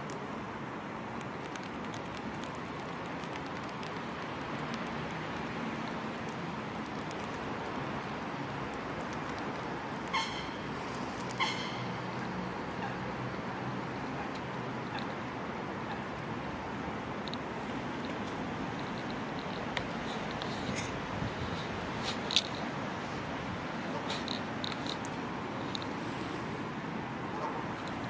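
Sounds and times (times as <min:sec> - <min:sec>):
background hiss: 0:00.0 - 0:28.0
bird calls: 0:10.1 - 0:10.6, 0:11.4 - 0:12.0.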